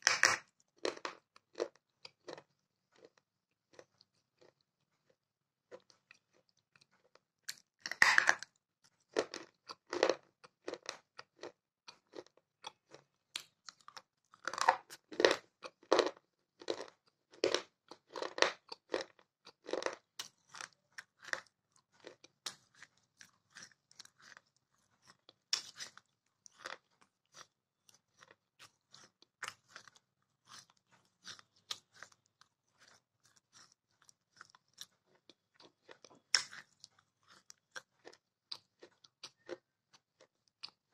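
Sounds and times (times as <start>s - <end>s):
crunching and chewing clay: 0.0s - 40.9s.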